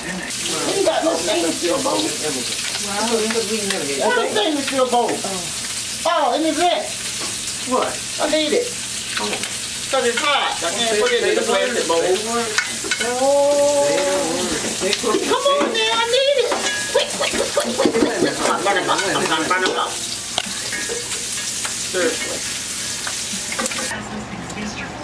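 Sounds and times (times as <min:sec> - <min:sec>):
indistinct talking: 0:00.0 - 0:07.0, 0:09.4 - 0:20.5
crabs sizzling in a skillet: 0:00.0 - 0:24.0.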